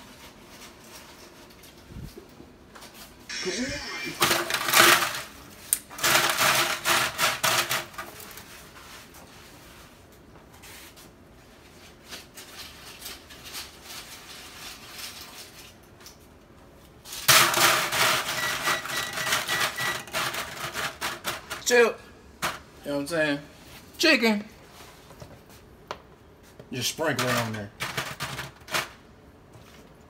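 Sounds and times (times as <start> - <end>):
tortilla chips crackling in foil pan: 11.8 - 16.2.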